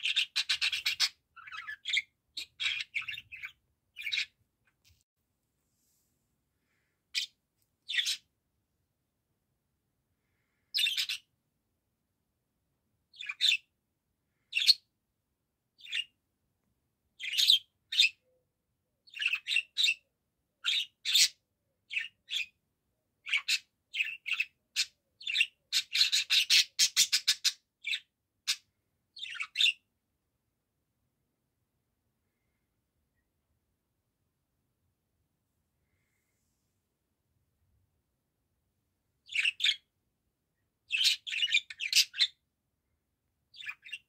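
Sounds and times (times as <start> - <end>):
budgerigar chirping: 0.0 - 4.4, 7.2 - 8.3, 10.8 - 11.3, 13.1 - 13.7, 17.2 - 18.2, 19.1 - 20.0, 20.6 - 22.6, 23.2 - 29.8, 39.2 - 39.9, 40.9 - 42.4, 43.5 - 44.0.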